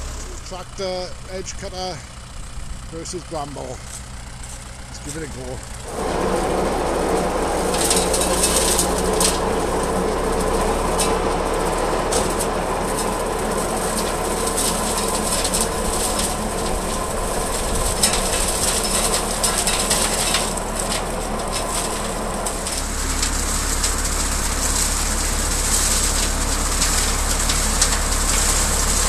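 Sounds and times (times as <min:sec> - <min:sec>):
diesel tractor running: 0:00.0 - 0:29.0
flails crackling through brambles: 0:00.0 - 0:29.0.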